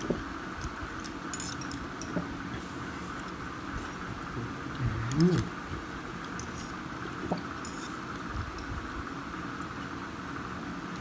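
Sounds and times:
utensils clinking on dishes: 1.3 - 2.2
person humming: 4.7 - 5.6.

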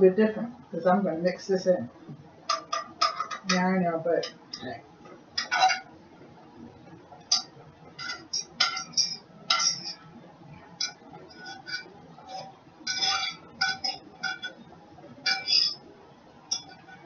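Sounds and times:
utensil clinking and scraping a pan: 2.5 - 4.7, 5.4 - 5.9, 7.3 - 10.0, 10.8 - 14.6, 15.2 - 15.8, 16.5 - 17.0.

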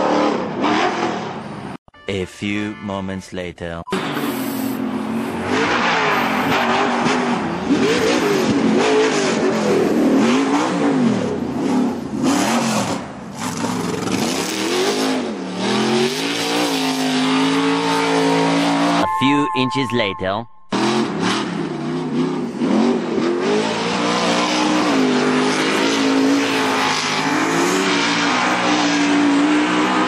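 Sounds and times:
race truck engine revving: 4.9 - 19.0, 20.7 - 30.0.

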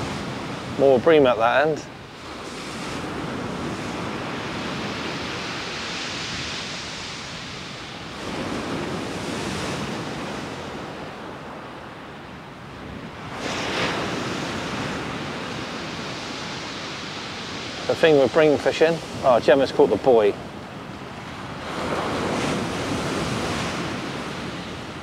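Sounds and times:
wind rumble on microphone: 0.0 - 25.0
surf breaking on shingle beach: 13.2 - 20.4, 21.2 - 25.0.

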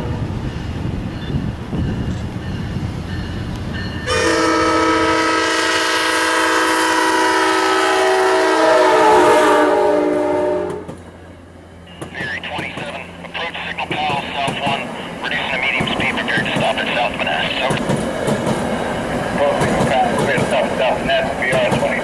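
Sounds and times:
diesel locomotive rumbling: 0.0 - 22.0
passing coaches rumbling: 0.0 - 22.0
train air horn chord: 4.1 - 11.0.

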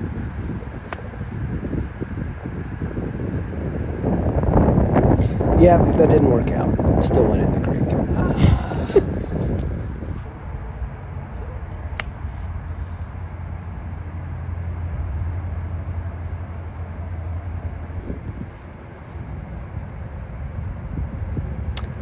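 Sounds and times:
low rumble: 0.0 - 22.0
golf club hitting ball: 11.9 - 12.3.

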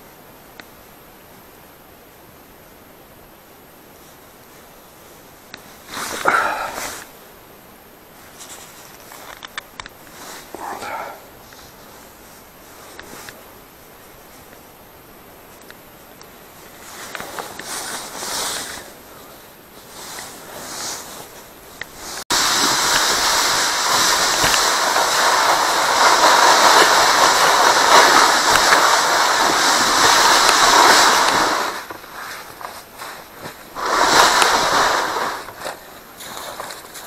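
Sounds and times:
handling rustles: 16.6 - 37.0
sled scraping across snowy ice: 16.8 - 19.0, 19.9 - 21.3, 22.1 - 37.0.

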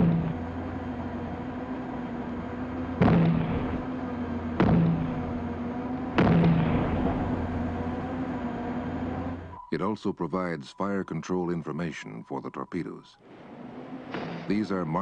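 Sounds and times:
steady low hum: 0.0 - 15.0
loud mortar shots: 2.8 - 7.9.

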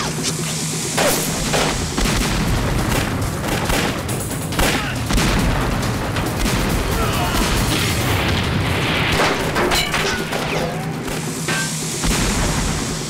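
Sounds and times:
low rumble: 0.0 - 13.0
rifle shots: 1.0 - 5.6
explosions booming: 1.0 - 9.7, 12.0 - 13.0.

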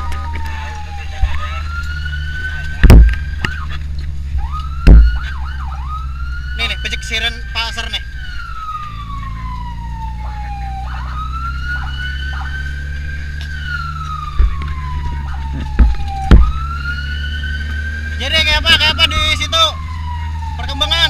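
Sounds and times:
car engine and road rumble: 0.0 - 21.0
emergency siren wailing: 0.0 - 21.0
loud thumps: 2.8 - 3.6, 4.7 - 5.3, 15.4 - 16.7.

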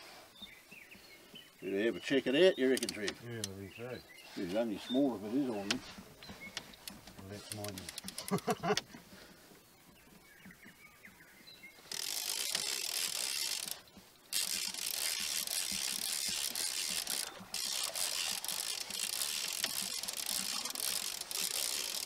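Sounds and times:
fishing reel clicking: 2.6 - 3.6, 6.6 - 8.5, 11.9 - 22.0.

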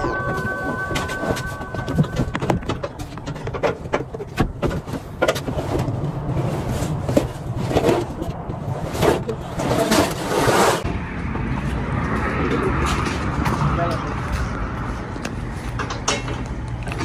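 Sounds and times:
carpet scraping and rustling: 0.1 - 10.8.

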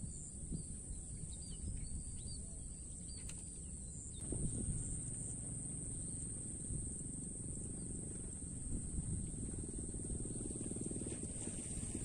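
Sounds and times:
low rumble: 4.2 - 12.0.

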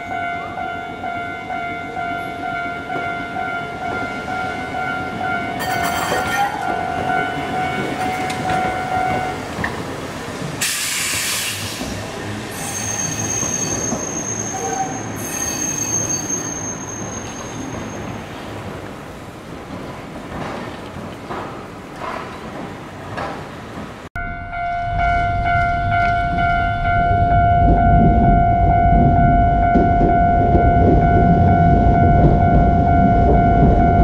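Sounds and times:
railway crossing signal ringing: 0.0 - 9.8, 24.2 - 34.0
tram low rumble: 0.0 - 34.0
tram wheels squealing: 3.0 - 9.5, 10.6 - 18.7
loud hiss: 10.6 - 11.8.

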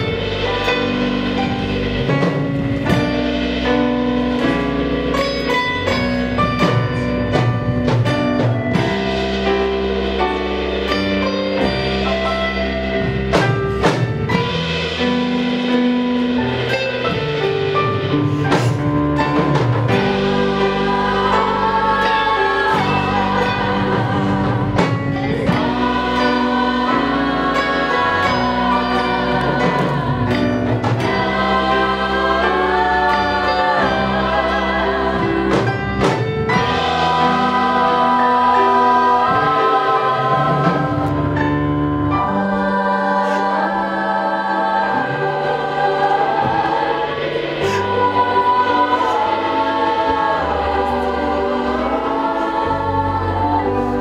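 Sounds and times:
musical accompaniment with bass notes: 0.0 - 54.0
several voices singing together: 19.8 - 41.4, 42.1 - 54.0.

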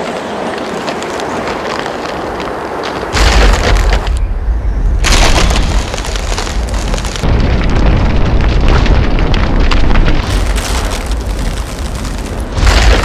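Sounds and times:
ice crackling and crashing: 0.0 - 4.2, 5.0 - 13.0
deep booming rumble: 3.2 - 13.0.

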